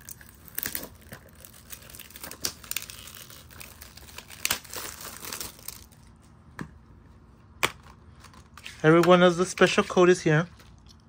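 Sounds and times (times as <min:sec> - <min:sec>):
plastic shrink-wrap crinkling: 0:00.0 - 0:06.1.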